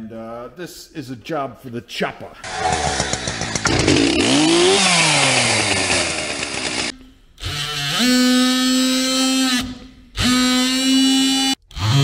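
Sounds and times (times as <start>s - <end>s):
oscillating multi-tool buzzing: 10.2s - 12.0s.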